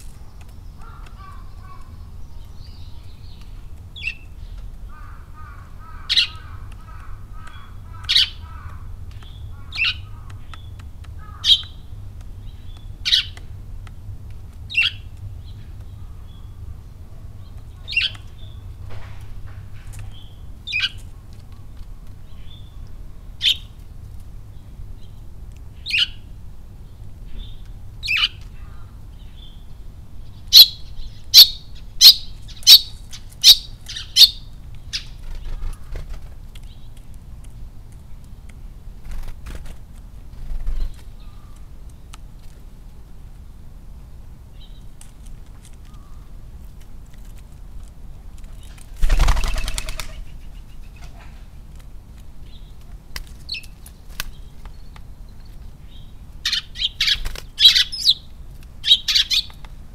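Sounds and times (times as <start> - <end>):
sparrow chirping: 0.0 - 13.4, 14.7 - 18.8, 20.0 - 21.1, 22.2 - 23.8, 25.8 - 26.3, 26.9 - 35.6, 52.4 - 59.6
soft bird twittering: 27.3 - 35.8, 53.4 - 59.6.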